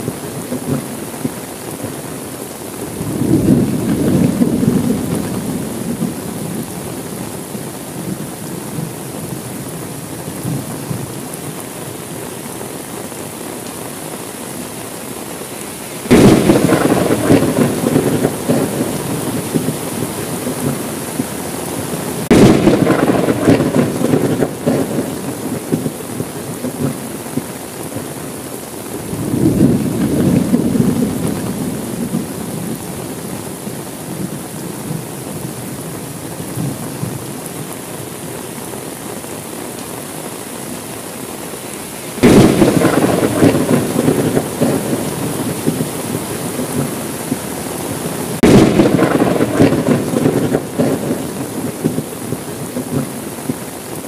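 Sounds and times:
steady rain: 0:00.0 - 0:54.0
soft thunder rumble: 0:02.9 - 0:07.4, 0:16.1 - 0:21.4, 0:22.2 - 0:28.1, 0:29.0 - 0:33.1, 0:42.2 - 0:47.5, 0:48.2 - 0:53.6
loud thunderclap: 0:03.0 - 0:06.5, 0:16.1 - 0:20.9, 0:22.2 - 0:25.9, 0:29.1 - 0:32.6, 0:42.2 - 0:47.0, 0:48.4 - 0:52.1.

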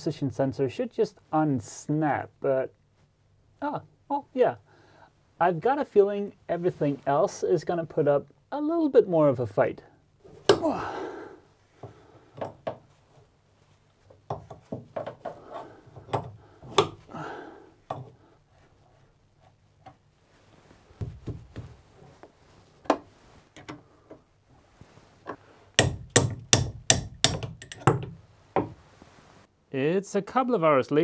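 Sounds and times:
dull thumps: 0:10.3 - 0:11.0, 0:14.1 - 0:17.1, 0:21.0 - 0:24.2, 0:24.8 - 0:28.9.

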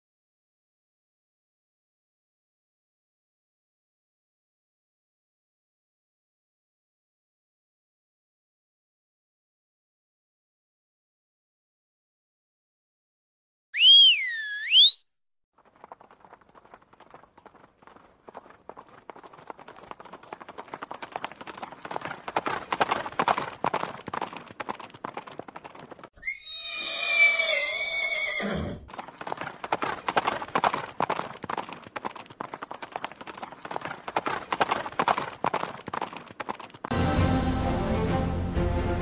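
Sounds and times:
horse hooves clip-clopping: 0:15.6 - 0:26.1, 0:28.9 - 0:37.0
horse whinnying: 0:26.2 - 0:28.9.

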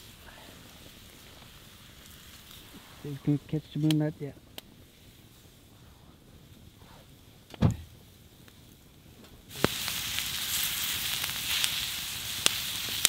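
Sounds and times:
vegetables sizzling on a grill: 0:00.0 - 0:04.3, 0:09.4 - 0:13.0
burning wood crackling: 0:00.0 - 0:13.0
dull low thump: 0:07.5 - 0:07.9.

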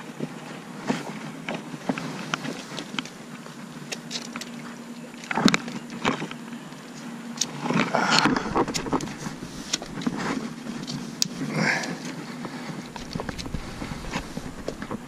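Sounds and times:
wind on microphone: 0:07.9 - 0:11.2, 0:12.5 - 0:15.0
rustling bursts: 0:08.3 - 0:11.1, 0:12.7 - 0:15.0.

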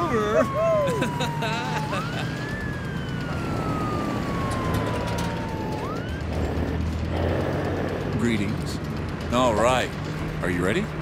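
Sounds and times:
police siren wailing: 0:00.0 - 0:07.1.

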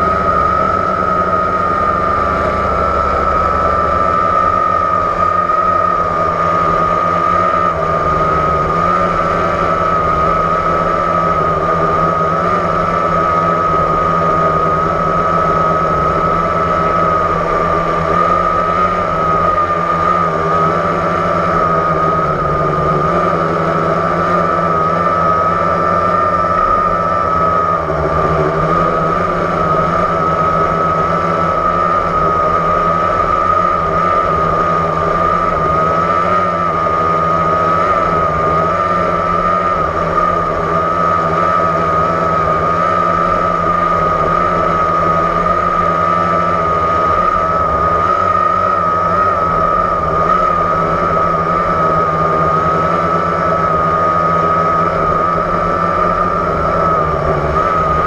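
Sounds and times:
drone propellers whining: 0:00.0 - 0:58.0.

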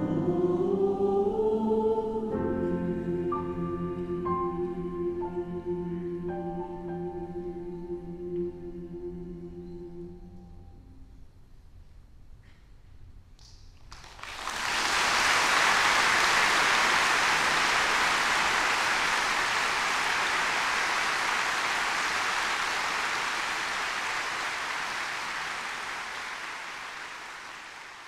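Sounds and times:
audience applauding: 0:13.8 - 0:28.0.

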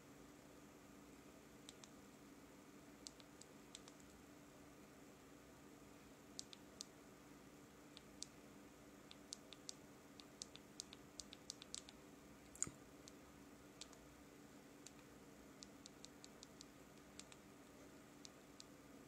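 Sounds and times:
fingertip tapping touchscreen: 0:03.0 - 0:04.1, 0:06.4 - 0:06.9, 0:09.1 - 0:12.0, 0:14.8 - 0:17.4.

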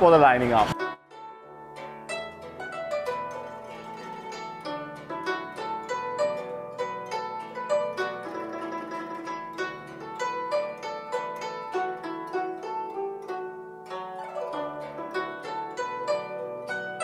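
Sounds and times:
plucked string melody: 0:00.0 - 0:17.0.

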